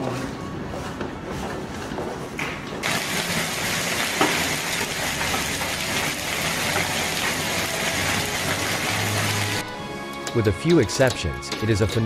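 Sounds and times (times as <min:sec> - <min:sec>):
heavy hail on pavement: 0:02.8 - 0:09.6.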